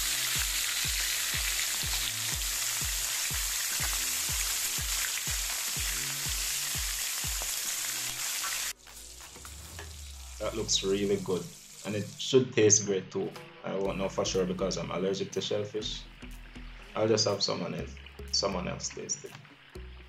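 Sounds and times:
background music with a beat: 0:00.0 - 0:12.0, 0:13.2 - 0:18.6, 0:19.2 - 0:20.0
lobster sizzling in hot oil: 0:00.0 - 0:12.3.

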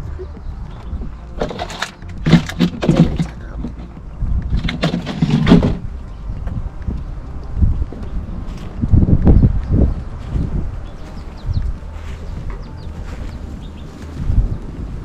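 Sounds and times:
low steady rumble: 0:00.0 - 0:15.0
kitchen items clattering: 0:01.4 - 0:03.9, 0:04.6 - 0:05.8.

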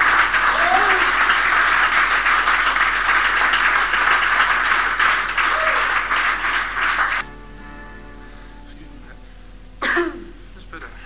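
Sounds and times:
audience clapping: 0:00.0 - 0:07.3.

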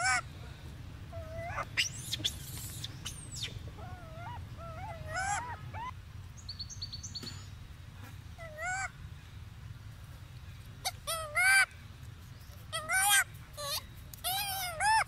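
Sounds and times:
young monkeys cooing and squealing: 0:00.0 - 0:00.3, 0:01.1 - 0:06.0, 0:08.4 - 0:09.0, 0:10.8 - 0:11.7, 0:12.7 - 0:15.0.

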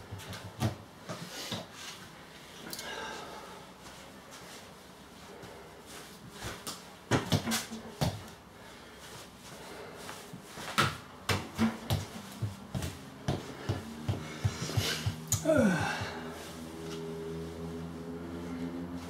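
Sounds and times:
clog footsteps on laminate floor: 0:11.8 - 0:16.0.

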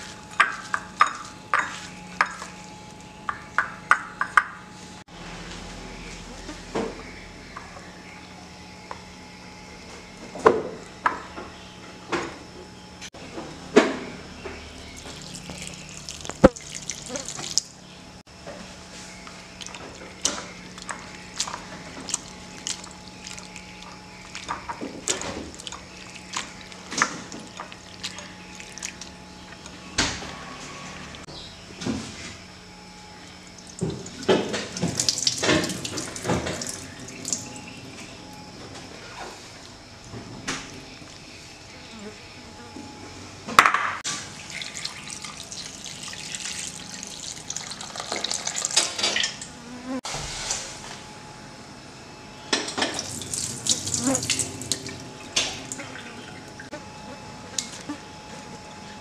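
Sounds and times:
water pouring into a bowl: 0:15.0 - 0:17.7, 0:20.8 - 0:29.1, 0:44.3 - 0:48.8, 0:53.0 - 0:56.1
water splashing into a steel sink: 0:15.0 - 0:17.7, 0:33.6 - 0:37.6, 0:44.1 - 0:49.4, 0:52.8 - 0:56.1.

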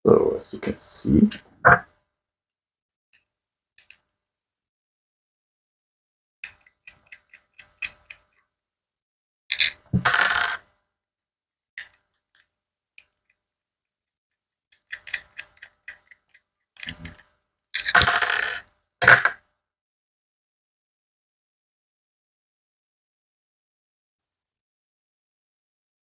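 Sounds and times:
screwdriver ticking: 0:06.4 - 0:08.4
small screws clattering on tabletop: 0:09.5 - 0:10.6, 0:14.7 - 0:19.3.

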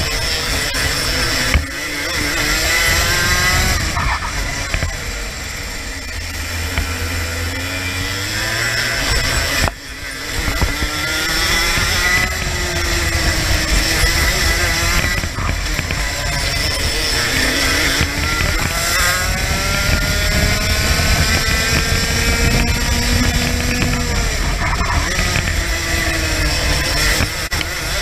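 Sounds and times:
kart engine accelerating and slowing: 0:00.0 - 0:28.0.

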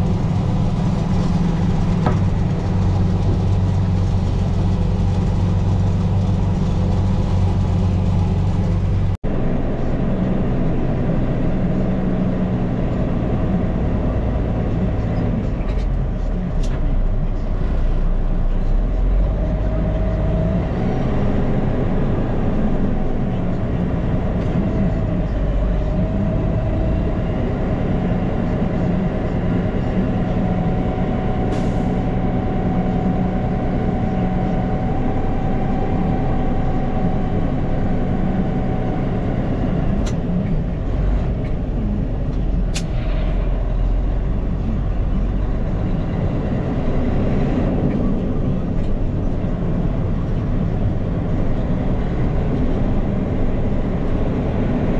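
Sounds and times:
truck engine running: 0:00.0 - 0:54.9.

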